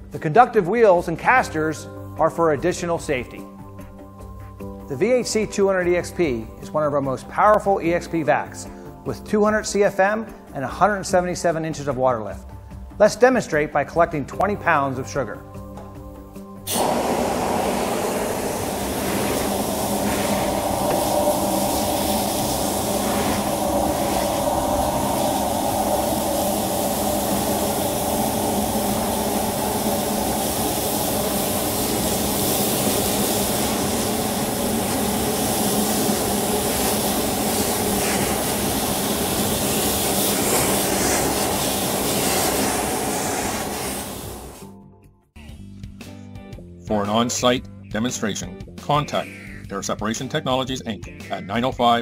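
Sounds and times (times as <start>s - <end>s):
industrial vacuum air rushing: 16.6s - 44.8s.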